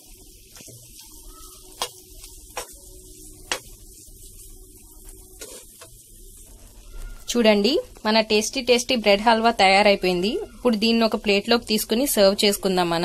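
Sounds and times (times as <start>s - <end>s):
spoon stirring in pan: 0.5s - 7.3s.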